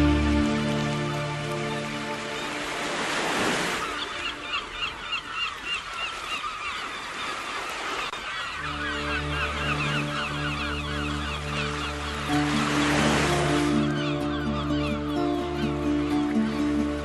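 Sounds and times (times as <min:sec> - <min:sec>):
song music: 0:00.0 - 0:02.8
faint sea noise: 0:00.0 - 0:17.0
high squawking bird calls: 0:03.6 - 0:16.9.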